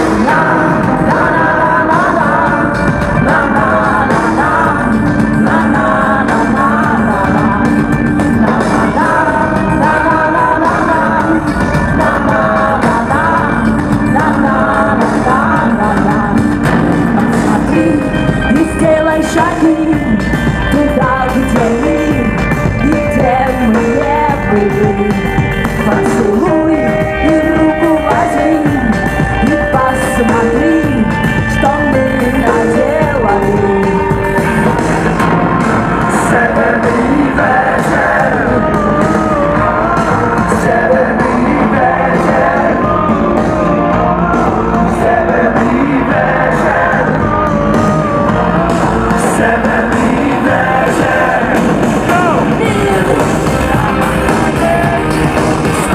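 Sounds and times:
woman singing into a microphone: 0:00.0 - 0:34.3
drums: 0:00.0 - 0:55.9
electric guitar: 0:00.0 - 0:55.9
keyboards: 0:00.0 - 0:55.9.

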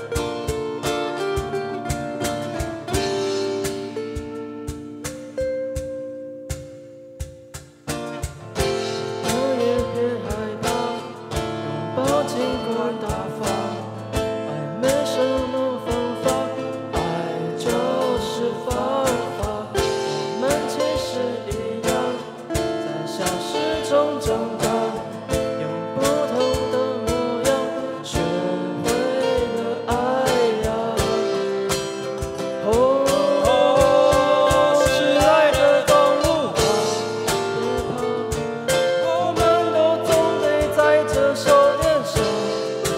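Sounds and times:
acoustic guitars strumming: 0:00.0 - 0:42.9
person singing: 0:08.6 - 0:42.9.

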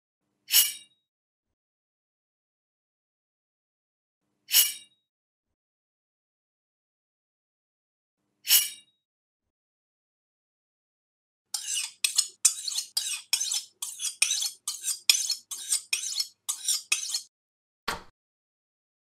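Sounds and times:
metallic clinks and scrapes: 0:11.6 - 0:17.3.

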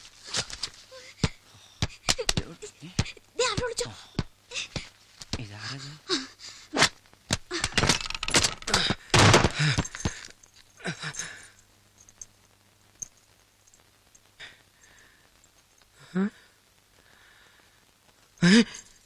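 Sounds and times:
sharp thuds: 0:08.7 - 0:10.2
faint ticks: 0:10.0 - 0:16.0
man exclaiming and gasping: 0:18.4 - 0:18.9.

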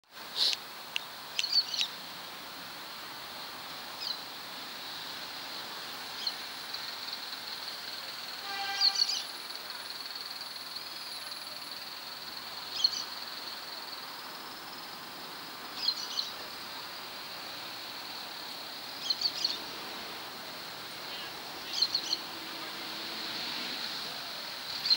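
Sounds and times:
short bird calls: 0:08.4 - 0:09.3.

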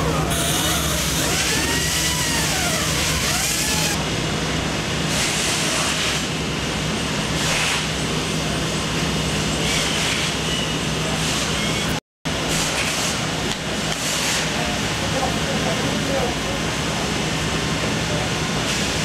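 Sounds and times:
rising and falling squeaks: 0:00.0 - 0:04.0
factory machine hum: 0:00.0 - 0:19.0.

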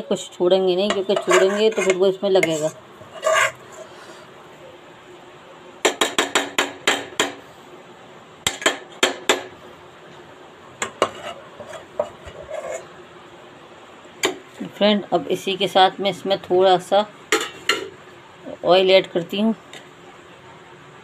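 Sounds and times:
metal spoon scraping cookware: 0:00.9 - 0:04.0, 0:11.0 - 0:12.9.

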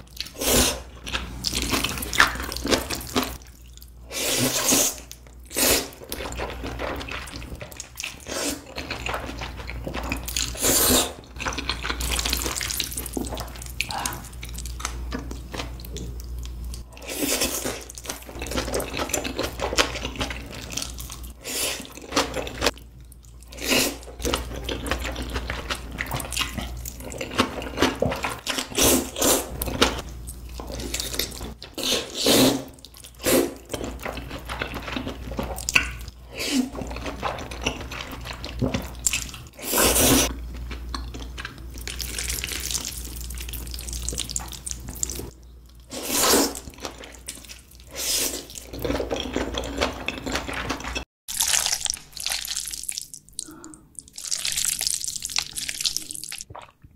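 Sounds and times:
wet chewing: 0:00.0 - 0:56.9
loud noodle slurps: 0:00.3 - 0:00.9, 0:04.1 - 0:06.0, 0:10.5 - 0:11.2, 0:31.8 - 0:33.7, 0:39.6 - 0:40.3, 0:45.9 - 0:46.7.

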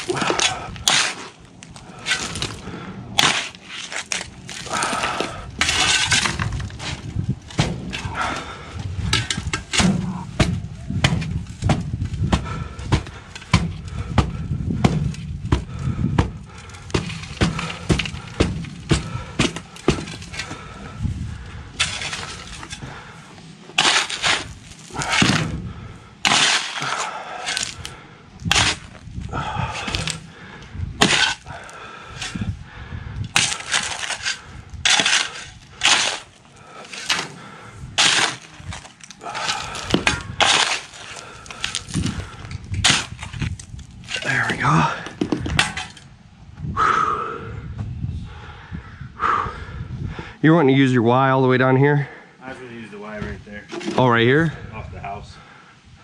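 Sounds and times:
shovel digging in gravelly soil: 0:00.0 - 0:13.6, 0:21.8 - 0:22.9, 0:23.7 - 0:25.5, 0:26.2 - 0:30.3, 0:31.0 - 0:32.5, 0:33.3 - 0:46.0.

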